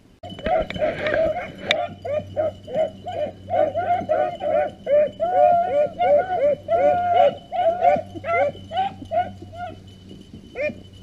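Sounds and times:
hounds baying: 0.2s - 11.0s.

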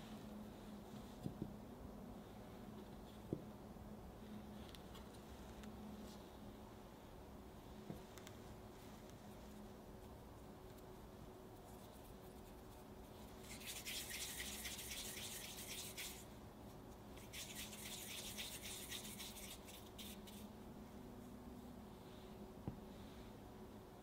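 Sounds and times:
hands rubbing sticky mixture: 11.6s - 20.5s.

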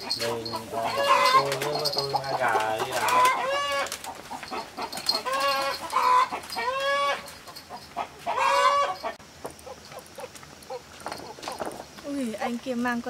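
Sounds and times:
rooster squawking: 0.0s - 1.6s, 2.8s - 9.8s.

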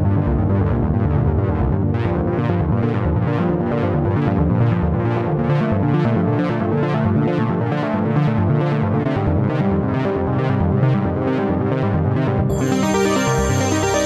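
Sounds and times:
electronic music with synthesizer: 12.5s - 14.0s.

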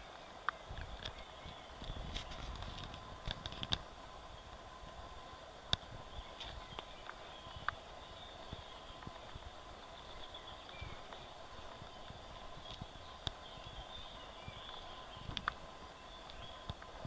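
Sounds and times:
footsteps on leafy dirt path: 0.9s - 3.8s, 6.2s - 15.3s.

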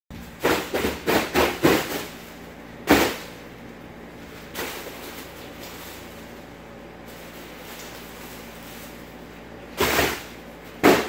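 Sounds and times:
foil balloons crinkling underfoot: 4.1s - 10.8s.

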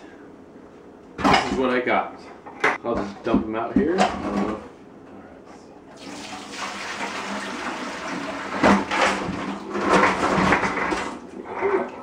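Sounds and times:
water pouring into a steel sink: 6.0s - 8.8s.

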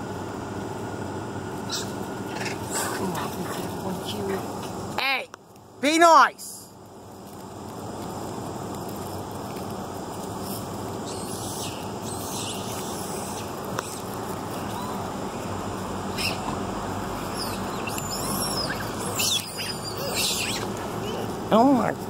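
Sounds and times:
steady rushing background noise: 0.0s - 22.0s
monkeys squealing and shrieking: 1.7s - 3.8s, 11.0s - 16.6s, 17.2s - 21.5s.

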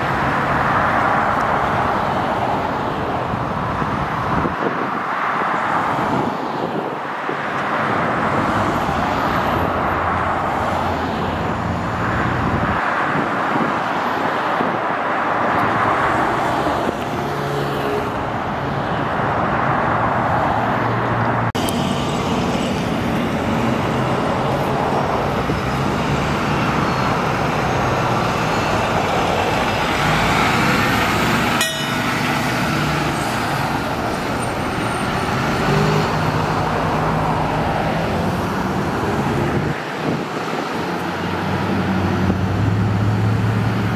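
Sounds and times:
freeway traffic: 0.0s - 43.9s
truck diesel engine passing: 20.4s - 43.9s.

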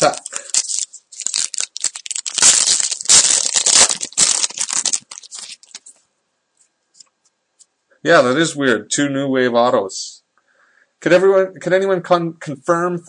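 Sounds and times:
wrapper tearing and crinkling: 0.0s - 5.9s.

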